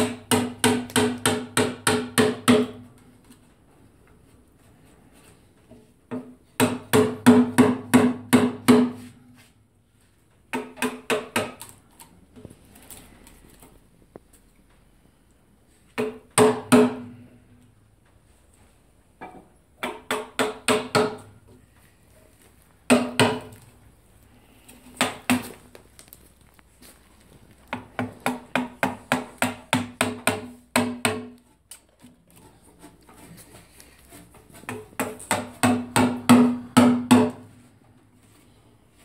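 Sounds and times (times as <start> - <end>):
hammer striking chisel: 0.0 - 2.8, 19.8 - 21.3, 22.9 - 23.6, 27.7 - 31.4, 34.5 - 37.4.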